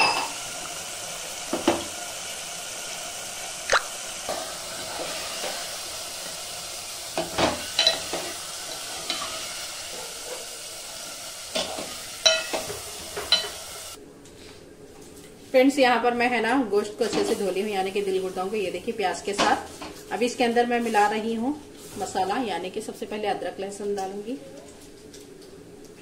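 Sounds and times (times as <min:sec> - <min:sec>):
vegetables sizzling in hot oil: 0:00.0 - 0:14.0.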